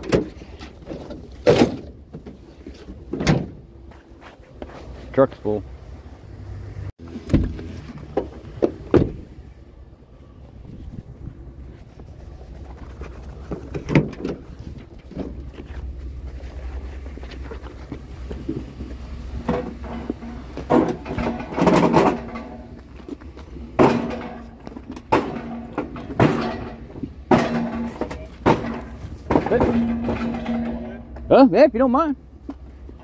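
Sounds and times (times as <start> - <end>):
truck engine rumbling: 0.0 - 33.0
metallic clanks: 18.4 - 31.4.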